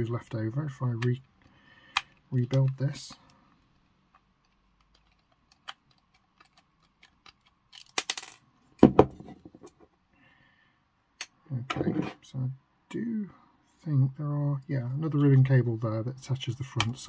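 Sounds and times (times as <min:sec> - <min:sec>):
loud knock: 0:08.8 - 0:09.3.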